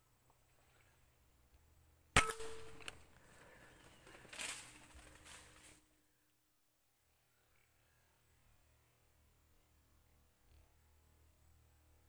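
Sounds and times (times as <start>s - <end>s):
rustling: 2.7s - 5.9s.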